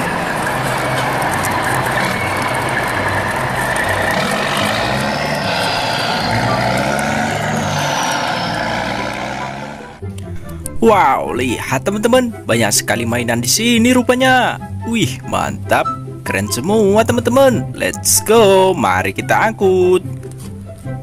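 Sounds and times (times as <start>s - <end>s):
faint gliding whine: 0.0s - 10.0s
low pulsing engine drone: 0.0s - 10.6s.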